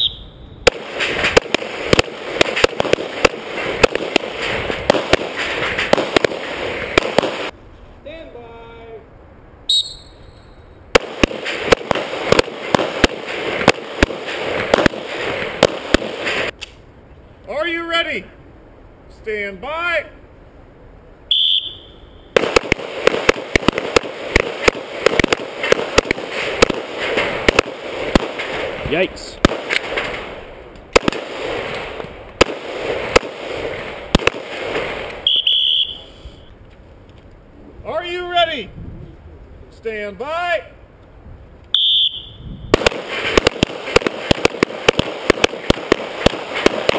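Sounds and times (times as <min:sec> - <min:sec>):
rapid pistol shots: 0:00.7 - 0:07.5, 0:11.0 - 0:16.5, 0:22.4 - 0:28.8, 0:29.4 - 0:30.3, 0:30.9 - 0:31.8, 0:32.4 - 0:35.0, 0:42.8 - 0:46.9.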